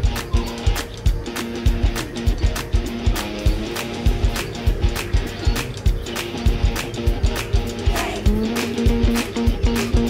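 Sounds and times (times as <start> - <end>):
steady drum beat: 0.0 - 10.0.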